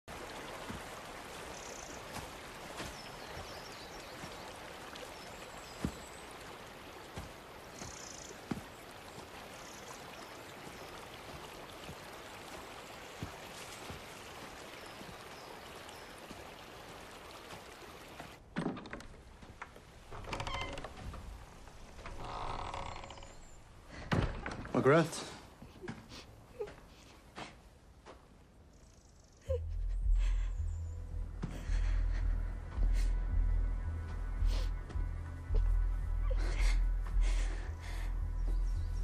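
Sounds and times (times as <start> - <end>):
stream flowing over rocks: 0.0 - 18.5
footsteps on frozen snow: 0.1 - 18.4.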